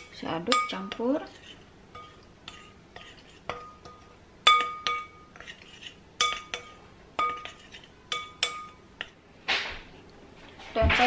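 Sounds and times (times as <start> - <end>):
spoon scraping through flour: 0.2 - 9.2
spoon clinking glass bowl: 2.0 - 5.6, 6.2 - 8.8.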